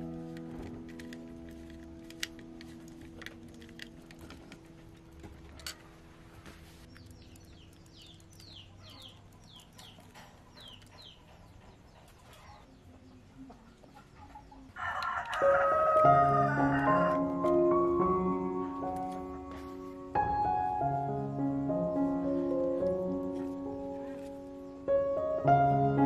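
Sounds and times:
background music: 0.0 - 10.6, 14.8 - 26.0
bird chirping: 6.8 - 15.2.

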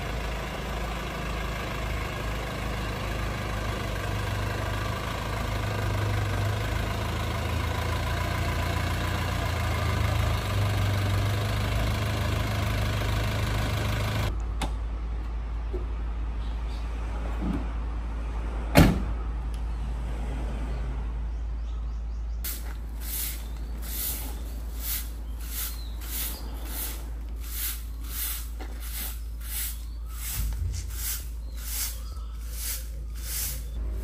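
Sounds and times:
van engine idling: 0.0 - 16.2, 22.5 - 34.0
van door slamming: 18.7 - 19.1
broom sweeping leaves on asphalt: 22.5 - 34.0.

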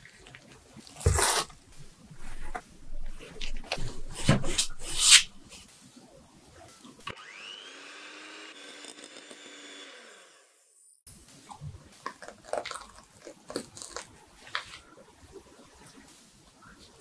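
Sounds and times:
electric hand mixer whirring: 7.1 - 10.9.

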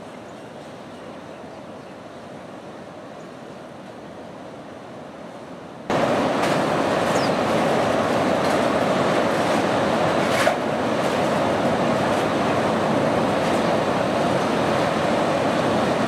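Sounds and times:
ocean surf: 2.2 - 16.0
wind on microphone: 5.9 - 16.0.

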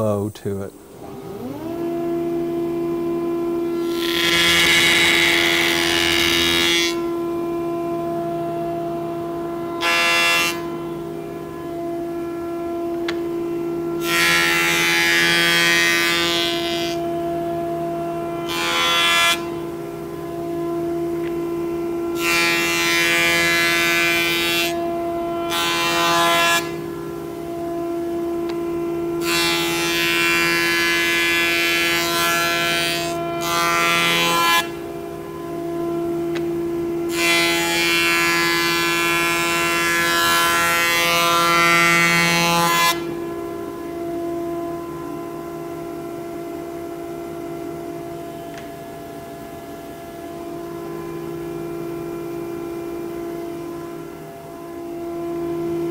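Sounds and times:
jointer whining: 0.0 - 46.0
cutterhead shaving wood: 3.8 - 7.0.

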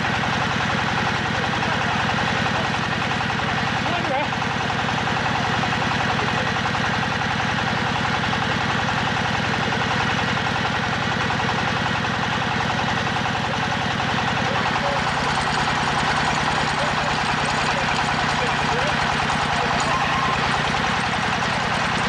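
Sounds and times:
drilling rig engine running: 0.0 - 22.0.

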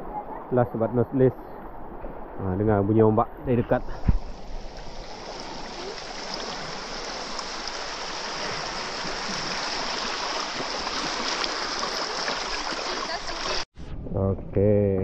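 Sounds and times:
small waves lapping on sand: 3.8 - 13.7.

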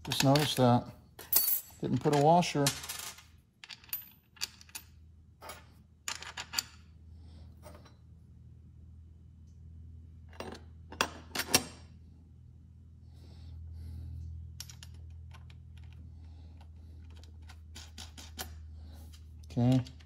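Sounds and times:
metal nuts and washers clinking: 0.0 - 6.9, 16.6 - 20.0.

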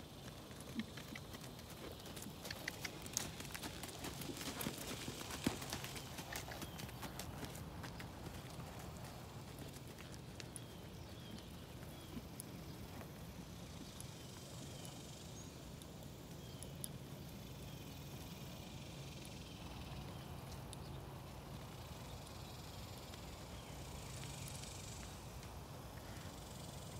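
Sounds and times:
horse hoofbeats on sand: 0.6 - 12.3.

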